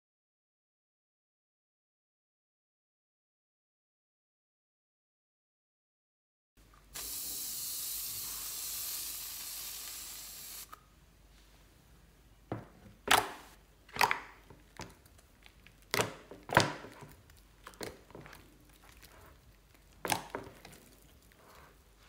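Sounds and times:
aerosol foam can hissing: 6.9s - 10.8s
hands squishing slime: 13.0s - 22.0s.

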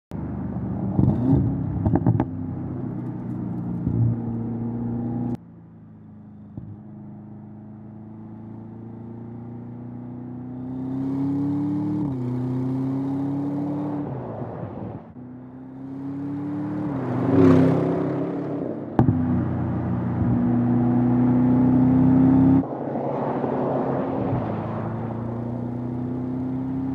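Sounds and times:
car engine accelerating hard: 15.5s - 26.9s.

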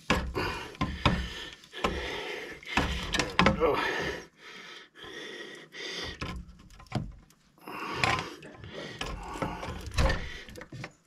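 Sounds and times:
hand tools clunking on metal: 0.0s - 4.0s.

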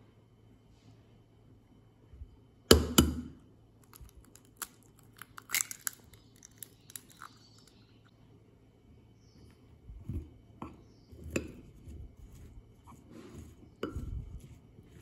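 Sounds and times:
eggshell crackling: 3.8s - 8.1s.

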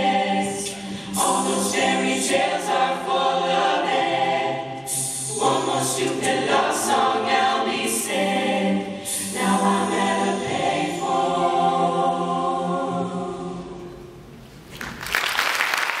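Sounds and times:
choir holding sustained chord: 0.0s - 14.2s
audience applause: 14.7s - 16.0s.

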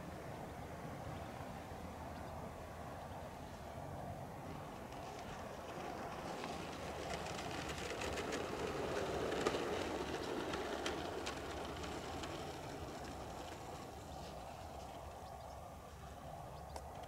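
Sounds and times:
model jet rushing past: 2.9s - 16.3s.

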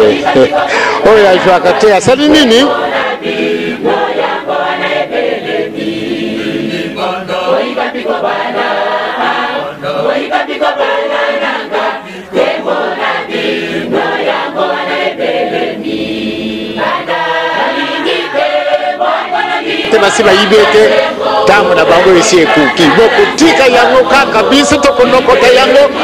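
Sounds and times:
choir singing gospel song: 0.0s - 26.0s
music: 2.7s - 22.0s.

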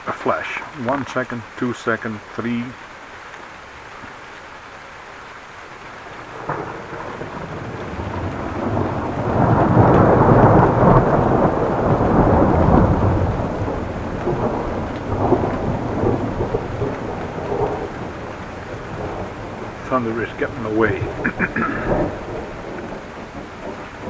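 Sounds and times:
heavy rain: 0.0s - 24.0s
rolling thunder: 6.2s - 24.0s
sharp thunder cracks: 6.3s - 24.0s.

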